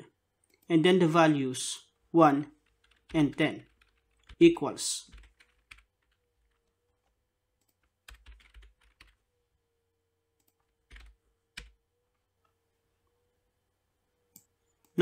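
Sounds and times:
faint steady hum: 0.0s - 15.0s
keyboard keystrokes: 7.6s - 9.2s.

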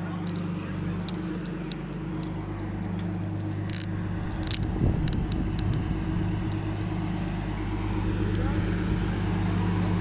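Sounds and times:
light rattling clicks: 0.0s - 6.9s, 8.0s - 9.2s
car engine and road noise: 0.0s - 10.0s.

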